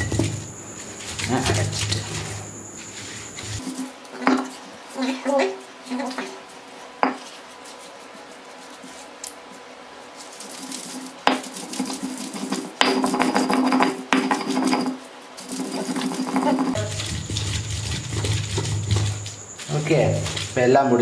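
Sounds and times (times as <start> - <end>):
stone roller grinding on stone: 0.0 - 6.4, 10.3 - 20.6
stone roller knocks: 11.2 - 15.0.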